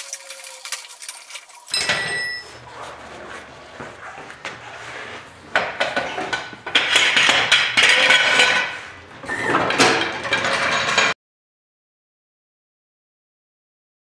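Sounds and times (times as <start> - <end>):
metal tools clanking: 0.0 - 2.7.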